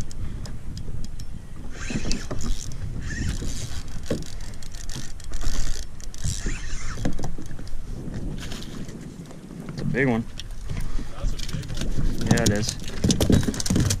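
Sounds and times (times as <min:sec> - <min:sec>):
fishing reel cranking: 0:01.7 - 0:07.6.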